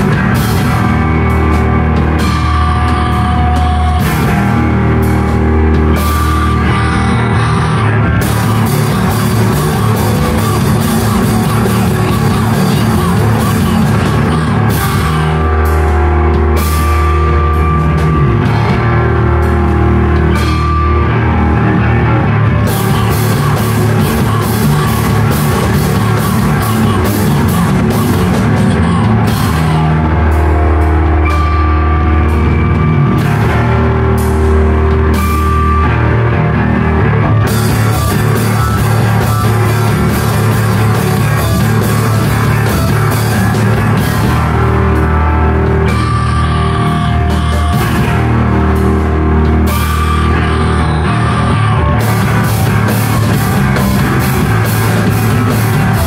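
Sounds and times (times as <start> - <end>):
drum kit: 0.0 - 56.0
rock band playing live: 0.0 - 56.0.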